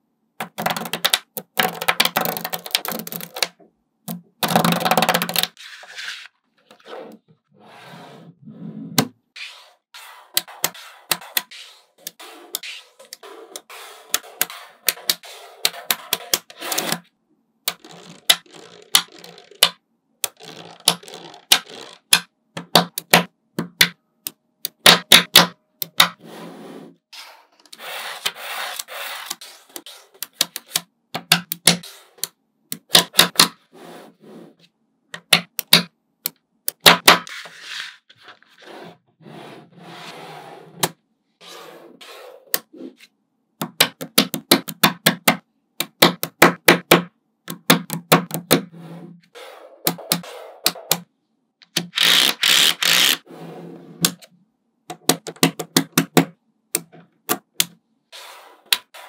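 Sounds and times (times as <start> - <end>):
balls rolling and rubbing: 0.4 - 17.1, 17.7 - 23.2, 25.9 - 30.9, 37.1 - 43.2, 48.2 - 51.2, 52.1 - 54.3, 56.8 - 59.0.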